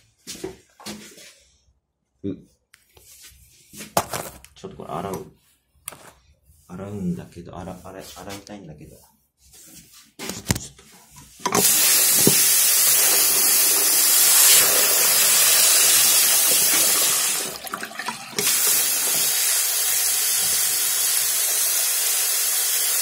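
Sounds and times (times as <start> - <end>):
water running from a tap: 11.4 - 23.0.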